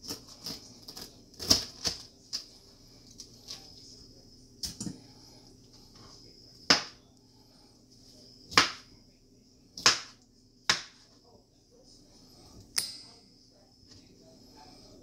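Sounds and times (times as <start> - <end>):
knife chopping on cutting board: 6.7 - 7.0, 8.5 - 8.9, 9.8 - 11.0.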